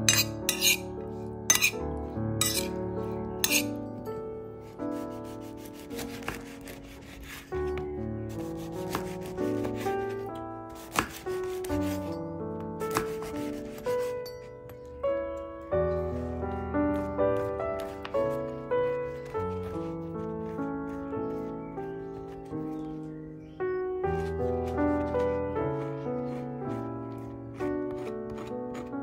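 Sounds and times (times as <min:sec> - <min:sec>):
knife sawing through bread: 0:00.1 - 0:00.9, 0:01.5 - 0:01.8, 0:02.4 - 0:02.8, 0:03.4 - 0:03.8, 0:04.9 - 0:07.6, 0:08.4 - 0:10.2, 0:10.8 - 0:12.1, 0:12.9 - 0:14.2, 0:18.8 - 0:21.5, 0:24.2 - 0:29.0.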